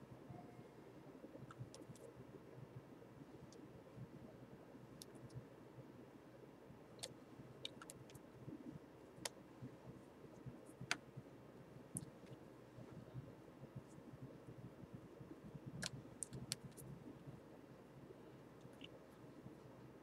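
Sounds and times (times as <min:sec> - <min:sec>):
faint sharp clicks: 0:07.0 - 0:08.2, 0:15.8 - 0:16.9.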